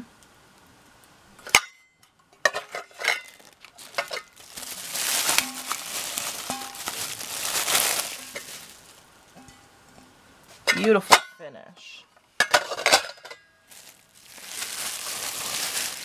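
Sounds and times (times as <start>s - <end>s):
metal bowls clinking: 2.4s - 4.4s, 5.2s - 7.0s
rustling: 2.4s - 9.2s, 12.6s - 16.0s.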